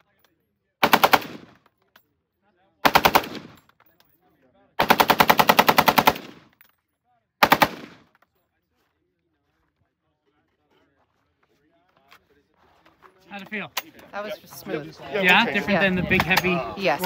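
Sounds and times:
automatic rifle bursts: 0:00.8 - 0:01.6, 0:02.8 - 0:03.6, 0:04.8 - 0:06.5, 0:07.4 - 0:08.1.

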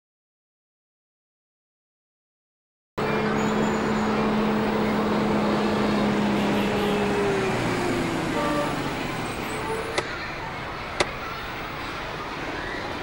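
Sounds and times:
engine humming: 0:03.0 - 0:13.0
street traffic: 0:03.0 - 0:13.0.

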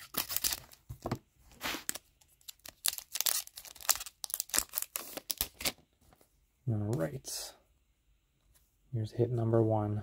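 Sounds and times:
wrapper tearing and crinkling: 0:00.0 - 0:00.9, 0:01.6 - 0:05.8.

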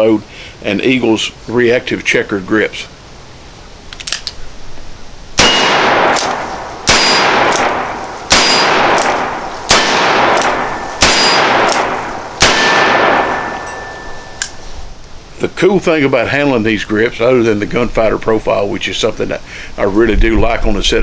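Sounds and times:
revolver shots with echo: 0:05.4 - 0:14.4.

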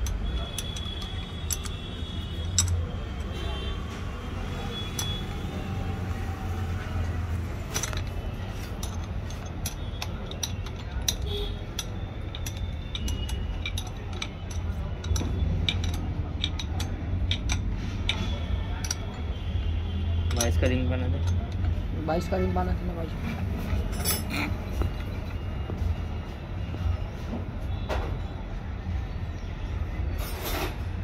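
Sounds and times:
steel tools clinking: 0:00.0 - 0:03.0, 0:07.6 - 0:19.4, 0:23.2 - 0:25.1.

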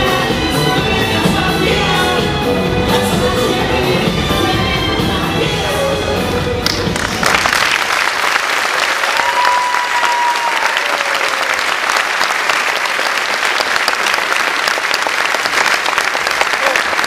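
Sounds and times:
dance music: 0:00.0 - 0:07.3
audience applause: 0:06.6 - 0:17.0.

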